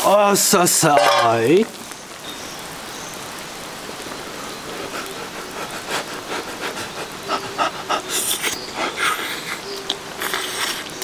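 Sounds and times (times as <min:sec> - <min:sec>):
person slurping spaghetti: 0:08.0 - 0:09.6, 0:10.2 - 0:11.0.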